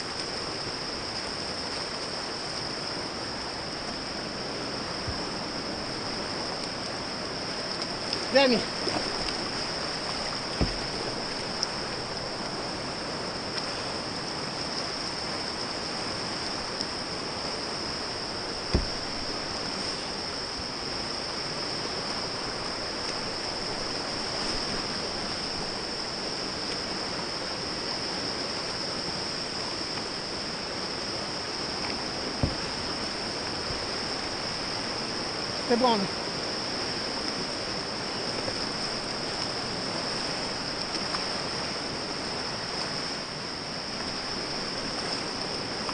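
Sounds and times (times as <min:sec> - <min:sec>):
whitewater rushing: 0:00.0 - 0:45.9
short thuds: 0:10.4 - 0:11.4, 0:18.6 - 0:19.6, 0:32.4 - 0:32.9.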